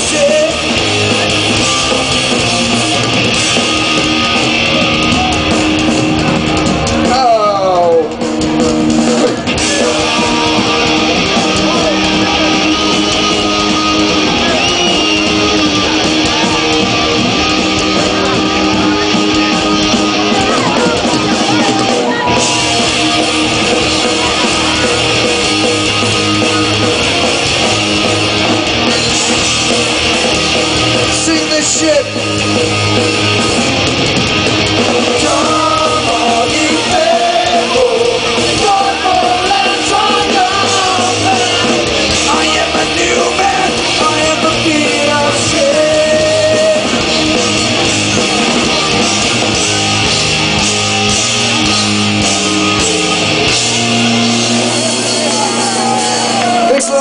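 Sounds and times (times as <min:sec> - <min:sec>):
punk rock band playing: 0:00.0 - 0:57.0
person singing: 0:09.6 - 0:13.8, 0:35.1 - 0:47.1.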